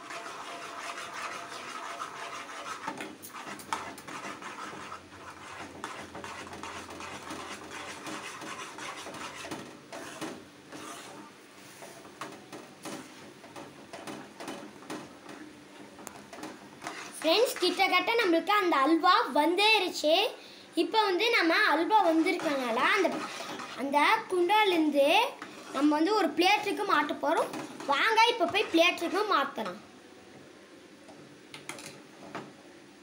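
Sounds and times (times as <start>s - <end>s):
ladle scraping a metal pot: 0.0s - 12.0s, 16.1s - 17.9s, 22.0s - 23.9s, 25.3s - 25.9s.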